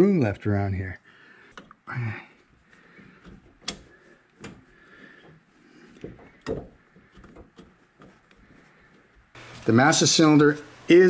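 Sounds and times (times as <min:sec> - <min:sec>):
sharp clicks and knocks: 0:03.0 - 0:09.0.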